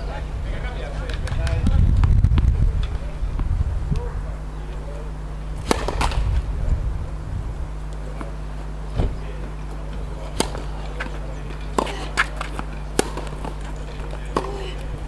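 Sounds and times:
tennis ball bouncing on court: 5.6s - 6.3s, 9.9s - 14.9s
racket striking tennis ball: 5.6s - 6.5s, 10.2s - 14.8s.

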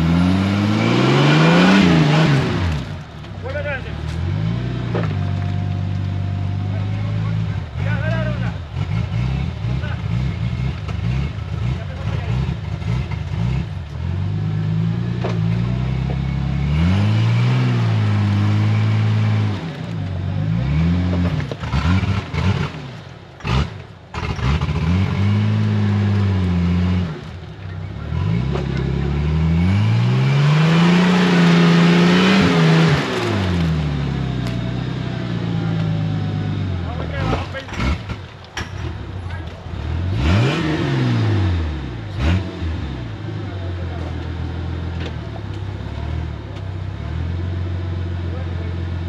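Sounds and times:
car engine revving hard: 0.0s - 3.0s, 6.4s - 27.3s, 28.1s - 38.2s, 39.7s - 43.5s.

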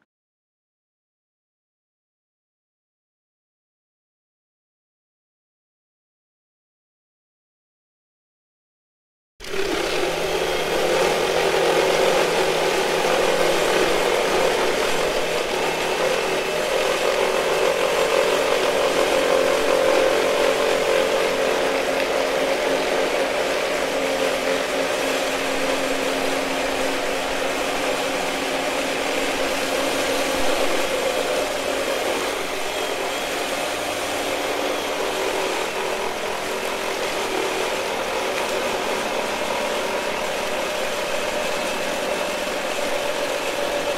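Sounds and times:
reciprocating saw cutting branch: 9.4s - 43.9s.

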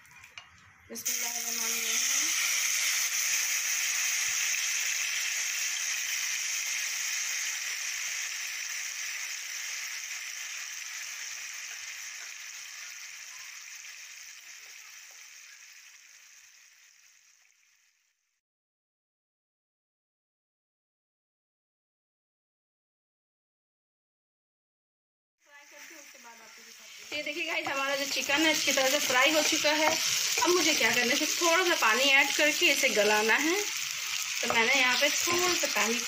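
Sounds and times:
chicken sizzling in hot oil: 0.0s - 18.3s, 25.5s - 36.0s.

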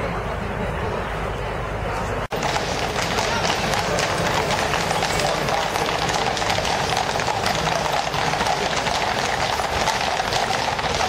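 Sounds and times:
horse hooves on tarmac: 2.3s - 11.0s.

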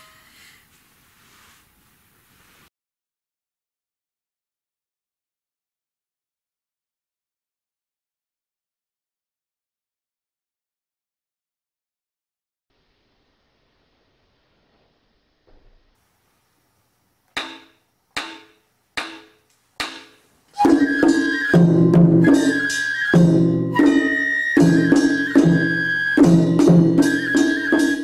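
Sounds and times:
festival drums: 19.8s - 28.0s
bamboo flute: 20.5s - 28.0s.

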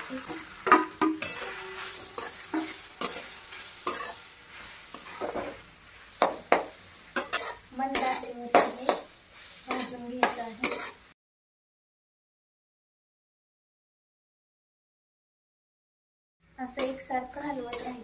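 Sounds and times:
metal spatula scraping a pan: 0.0s - 11.1s, 16.8s - 18.0s
light frying sizzle: 0.0s - 11.2s, 16.4s - 18.0s.

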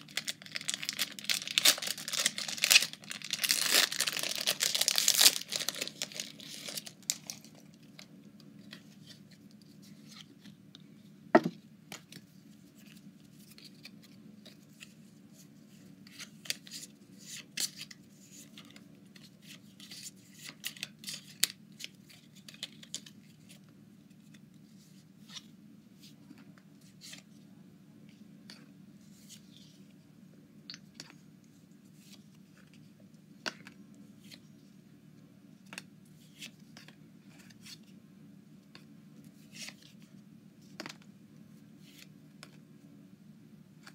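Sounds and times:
cards and wrappers rustling: 0.0s - 10.5s
faint low hum: 0.0s - 43.9s.

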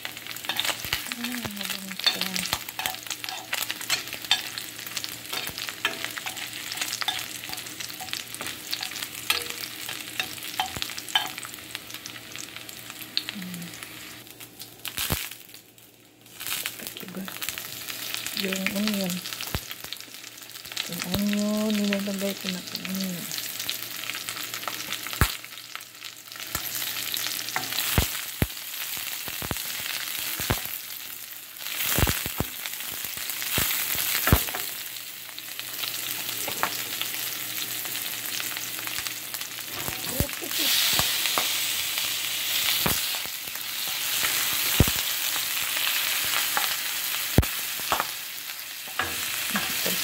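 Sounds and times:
garlic and onion sizzling: 0.0s - 50.0s
spoon scraping a pan: 0.4s - 1.1s, 1.9s - 11.5s.

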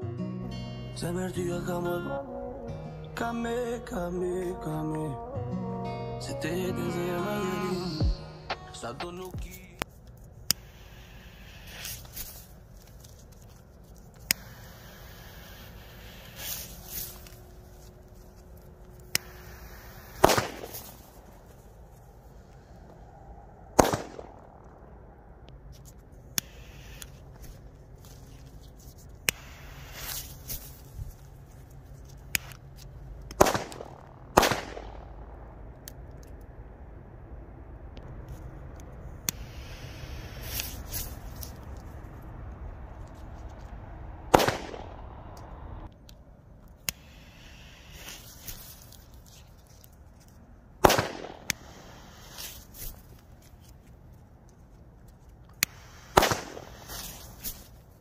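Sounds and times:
firecracker fuse hissing: 10.5s - 21.6s, 26.4s - 28.5s, 29.2s - 32.6s, 39.2s - 41.7s, 46.9s - 49.4s, 50.8s - 53.3s, 55.6s - 57.8s
small firecracker pops: 19.0s - 21.2s, 23.8s - 24.5s, 33.3s - 35.0s, 44.3s - 45.4s, 50.8s - 52.9s, 55.6s - 57.7s
loud firecracker bangs with echo: 20.2s - 20.9s, 23.8s - 24.4s, 33.4s - 35.2s, 44.3s - 45.2s, 50.8s - 51.5s, 56.1s - 56.9s.

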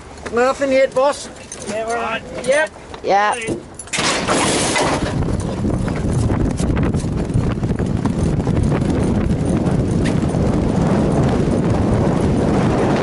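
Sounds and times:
horses galloping on turf: 4.4s - 13.0s.

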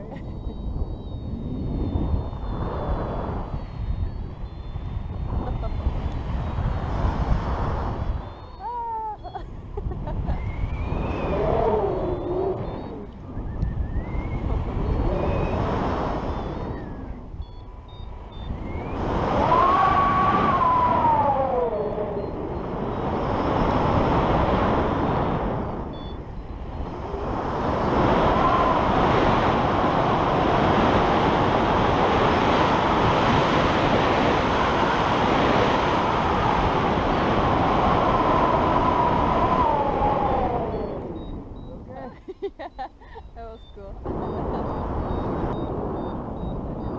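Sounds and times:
wind buffeting microphone: 0.0s - 46.9s
whistling tone sliding down: 10.3s - 29.6s, 37.0s - 41.8s.

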